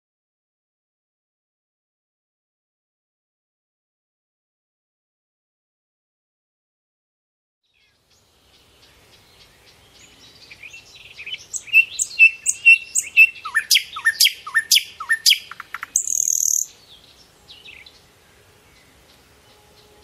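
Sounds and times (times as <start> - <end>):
songbird singing: 7.6 - 20.0.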